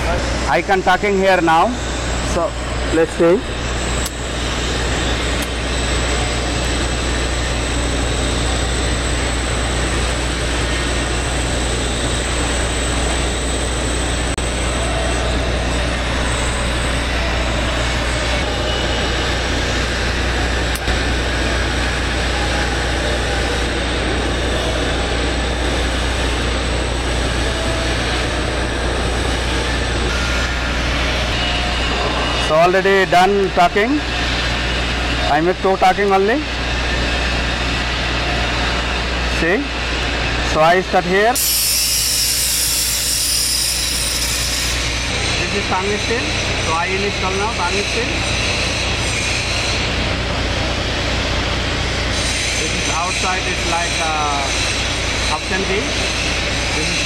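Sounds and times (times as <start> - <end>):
machinery hum and hiss: 0.0 - 57.0
torch welding pipe: 0.2 - 11.6, 40.7 - 50.0.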